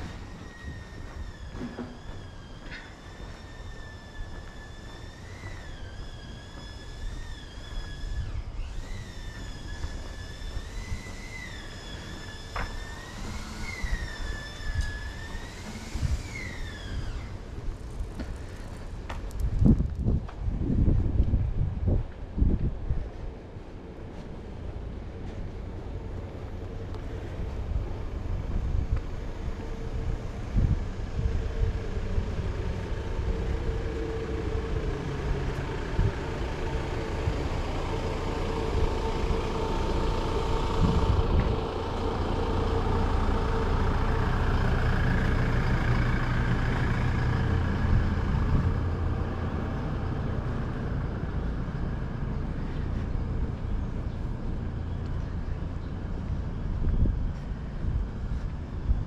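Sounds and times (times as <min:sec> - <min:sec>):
steady low rumble: 0:15.9 - 0:59.0
vehicle driving past: 0:25.9 - 0:56.6.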